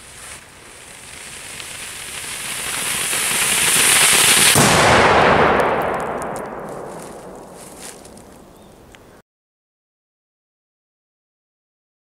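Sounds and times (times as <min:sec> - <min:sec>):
firework hissing: 0:00.0 - 0:05.0.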